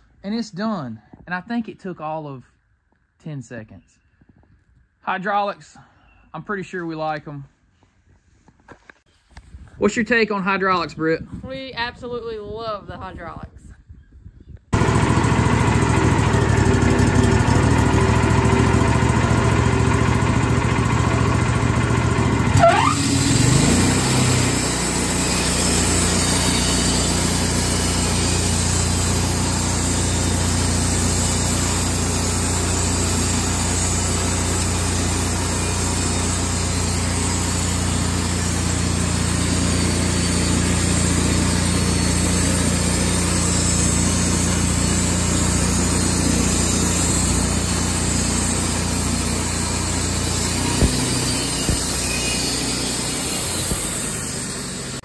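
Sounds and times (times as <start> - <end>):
band sawmill cutting log: 14.8 - 55.0
brief sliding whine: 22.5 - 24.5, 48.6 - 55.0.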